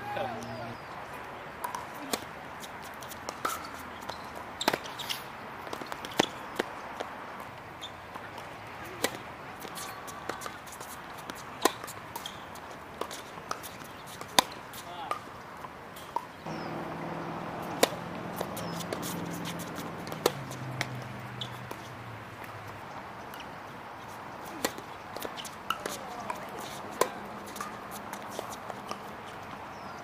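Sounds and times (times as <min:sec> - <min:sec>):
tennis ball hits and bounces: 0:01.6 - 0:02.3, 0:02.9 - 0:15.3, 0:16.0 - 0:23.6, 0:24.4 - 0:30.0
low droning hum: 0:16.5 - 0:20.7.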